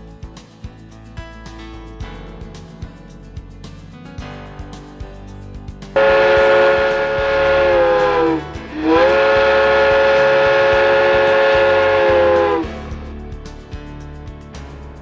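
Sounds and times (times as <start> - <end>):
steam locomotive whistle blasts: 6.0 - 12.7.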